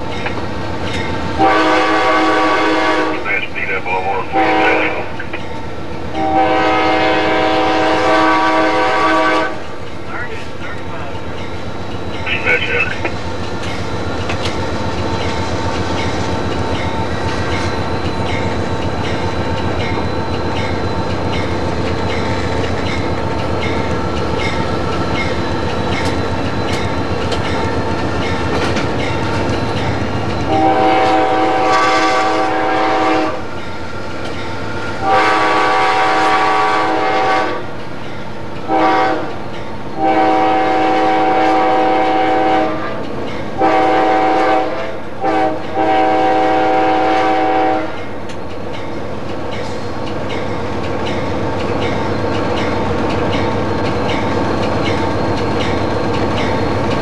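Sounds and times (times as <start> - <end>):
wheels clacking over rail joints: 0.0 - 1.5, 13.0 - 31.9, 48.0 - 57.0
locomotive running: 0.0 - 57.0
train air horn: 1.4 - 3.3, 4.3 - 5.0, 6.2 - 9.6, 30.5 - 33.5, 35.0 - 37.7, 38.7 - 39.4, 40.0 - 43.0, 43.6 - 48.0.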